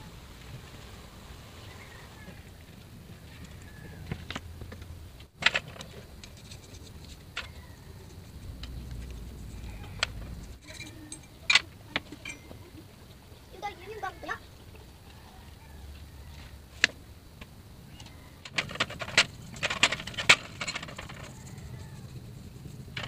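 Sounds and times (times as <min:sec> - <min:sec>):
metal parts clinking in a basin: 0:05.4 - 0:12.6, 0:18.0 - 0:23.0.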